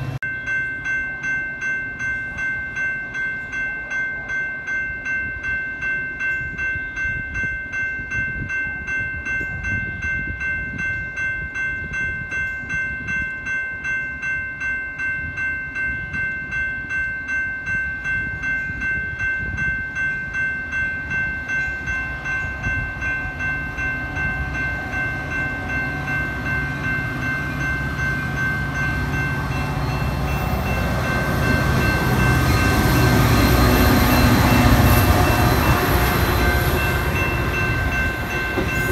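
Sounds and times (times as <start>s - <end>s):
diesel locomotive engine rumble: 0.0s - 0.2s, 18.1s - 38.9s
railroad crossing bell ringing: 0.0s - 38.9s.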